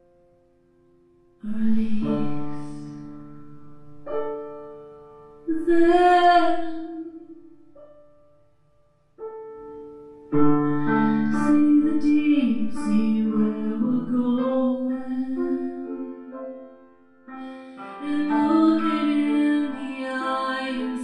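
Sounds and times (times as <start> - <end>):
piano chords: 0.0 - 21.0
woman singing: 1.4 - 2.9, 5.4 - 7.6, 11.0 - 16.2, 17.9 - 21.0.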